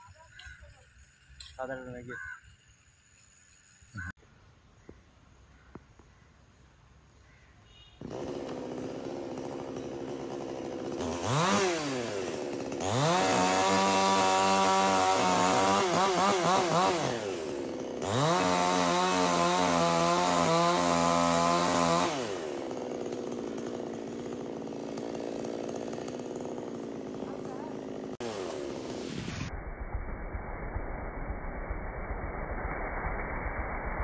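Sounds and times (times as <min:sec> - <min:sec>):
chainsaw idling and revving: 0:08.0 - 0:29.4.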